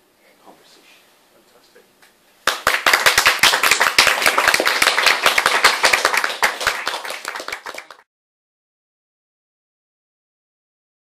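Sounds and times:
small audience applauding: 2.4 - 8.1.

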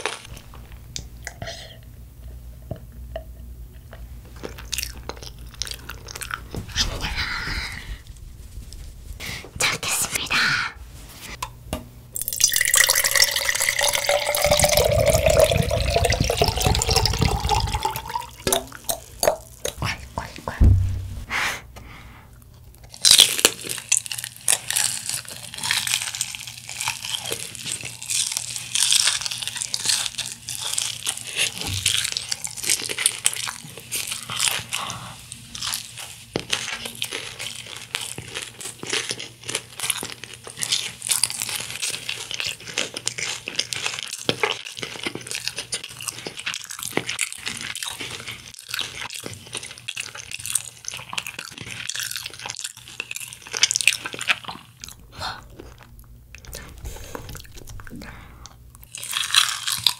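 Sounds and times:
crunching fried chicken: 4.3 - 6.6, 22.8 - 59.9.

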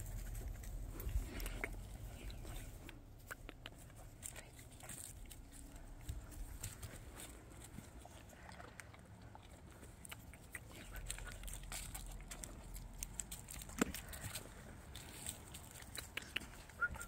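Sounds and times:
dry leaves crackling underfoot: 3.7 - 8.3, 10.0 - 17.0.

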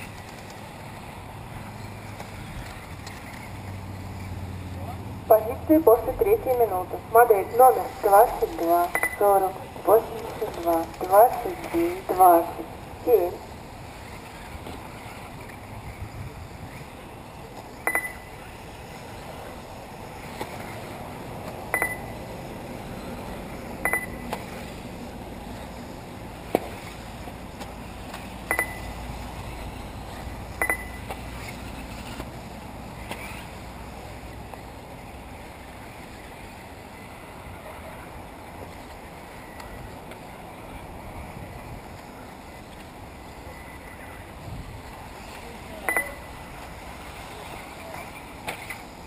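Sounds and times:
outdoor background hiss: 0.0 - 49.0
short electronic beeps: 8.8 - 10.0, 17.9 - 18.3, 21.8 - 22.2, 23.8 - 24.2, 28.5 - 29.0, 30.6 - 31.0, 45.9 - 46.3.

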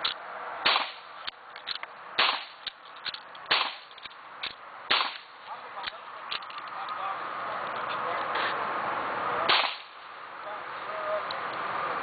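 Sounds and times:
pistol gunshots: 0.6 - 1.1, 2.2 - 2.7, 3.5 - 3.9, 4.9 - 5.4, 9.5 - 10.0.

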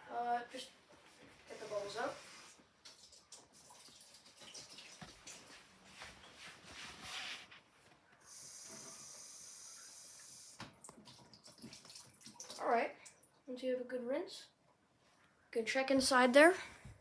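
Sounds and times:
faucet water stream hiss: 1.5 - 5.4, 8.2 - 12.6.

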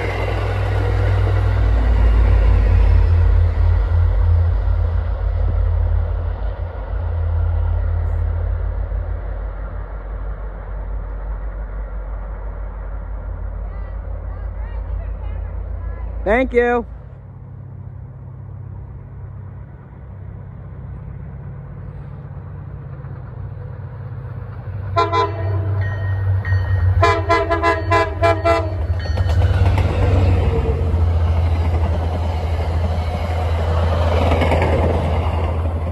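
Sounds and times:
train rumble: 0.0 - 35.9
train horn: 24.9 - 26.2, 26.8 - 29.0.

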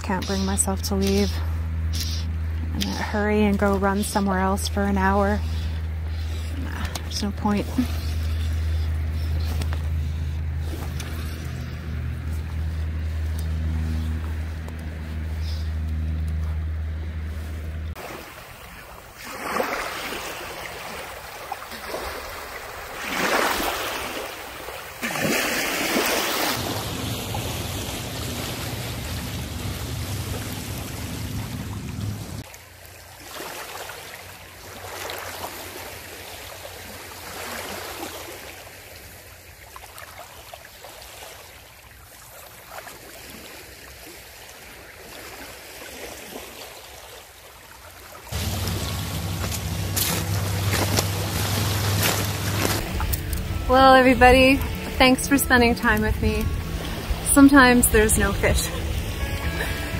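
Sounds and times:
low steady hum: 0.0 - 19.2, 26.6 - 32.5, 48.3 - 59.9
small waves lapping at shore: 0.0 - 59.9.

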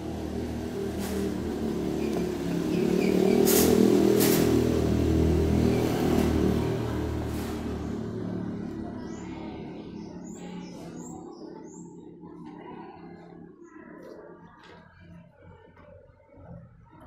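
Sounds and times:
vehicle engine passing by: 0.0 - 13.5.

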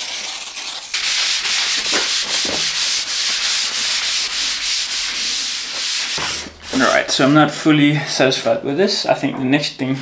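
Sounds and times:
pad scrubbing iron table: 1.0 - 7.6.

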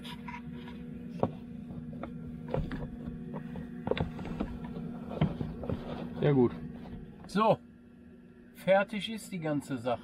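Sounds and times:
knocks and rustles of handling: 0.0 - 7.4
steady low hum: 0.0 - 10.0.

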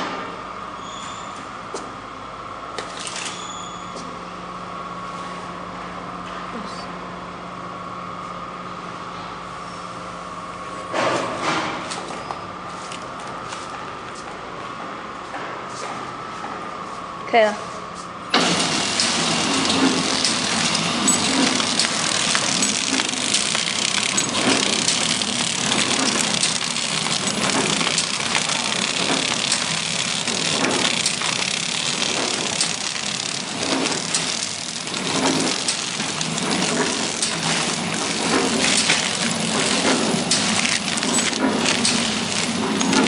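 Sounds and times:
packaging machine clattering: 18.4 - 43.0.

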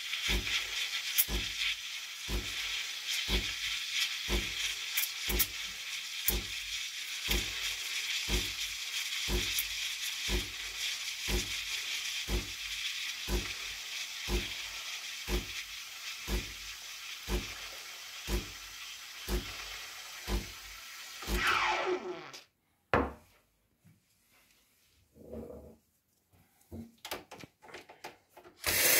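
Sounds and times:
steam wand hissing in milk: 0.0 - 22.3, 28.6 - 28.9.

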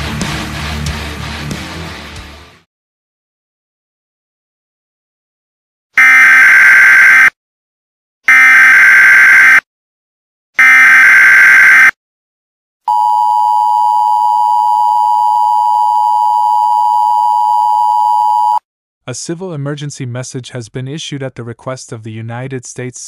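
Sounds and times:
two-tone attention signal: 6.0 - 7.3, 8.3 - 9.6, 10.6 - 11.9
data header bursts: 8.3 - 9.6.

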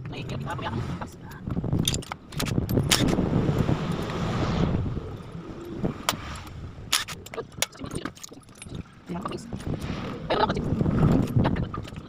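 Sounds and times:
rushing noise: 2.9 - 6.5.

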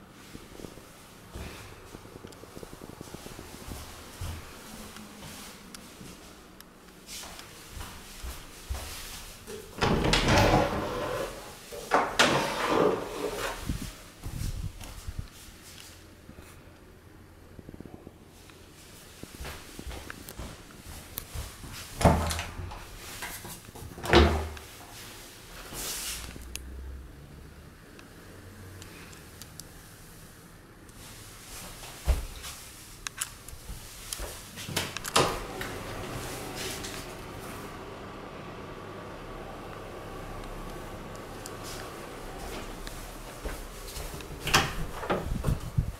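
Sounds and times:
folding doors moving: 9.8 - 13.6, 41.6 - 45.8.

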